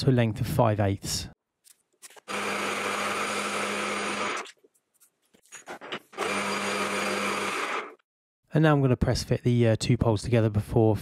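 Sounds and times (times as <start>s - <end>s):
metal lathe running: 2.3s - 4.5s, 6.2s - 8.0s.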